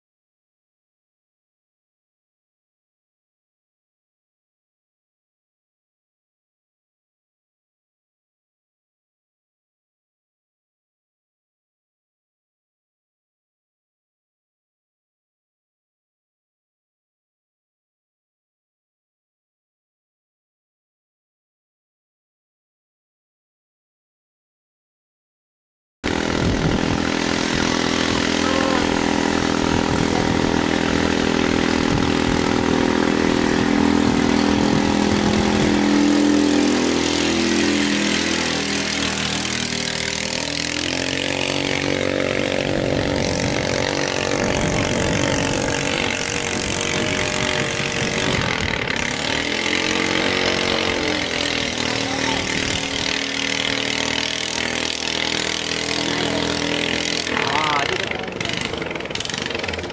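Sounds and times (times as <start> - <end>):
boat engines running at high revs: 26.0 - 59.9.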